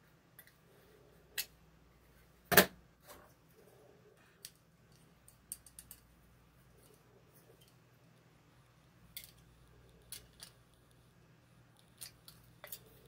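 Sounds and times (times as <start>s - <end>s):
small metallic clicks and taps: 4.4s - 6.1s.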